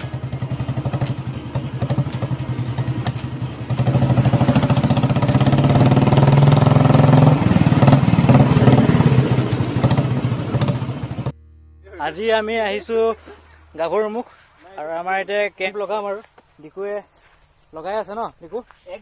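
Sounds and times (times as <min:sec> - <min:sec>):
motorcycle engines passing: 0:00.0 - 0:14.6.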